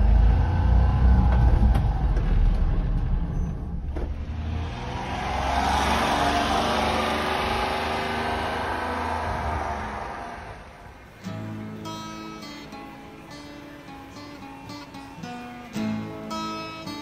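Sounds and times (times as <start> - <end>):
small truck engine running: 0.0 - 11.1
truck driving past: 0.0 - 11.2.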